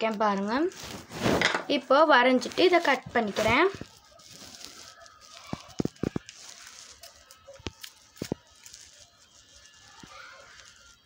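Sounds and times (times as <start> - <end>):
paper rustling: 0.0 - 1.5, 2.3 - 11.0
scissors snipping paper: 2.6 - 11.0.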